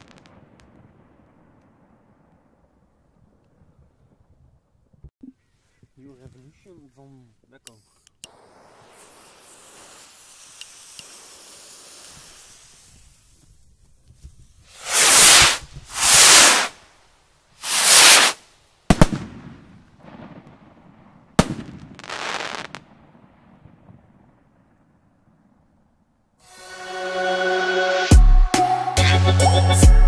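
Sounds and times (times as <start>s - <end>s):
fireworks bursting bangs: 0.0s - 4.4s, 8.3s - 17.0s, 17.6s - 24.8s
skyrockets whooshing: 8.3s - 13.6s, 14.6s - 16.9s, 17.6s - 19.3s.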